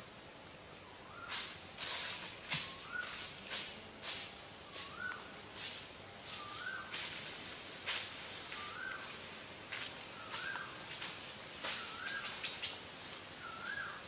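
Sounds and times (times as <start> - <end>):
bird whistled call: 6.3 - 6.9, 8.6 - 9.1, 11.8 - 12.8, 13.4 - 14.0.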